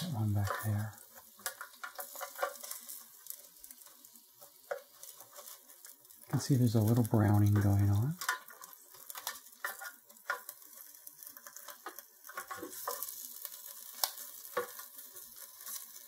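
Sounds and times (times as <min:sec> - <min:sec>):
chicken wings sizzling: 0:00.0 - 0:16.0
tongs clicking on basket: 0:00.4 - 0:03.0.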